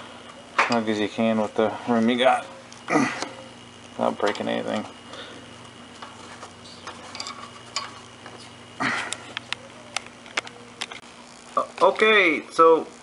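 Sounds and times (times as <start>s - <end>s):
faint steady hum: 0.0s - 13.0s
metal clatter: 6.8s - 8.1s.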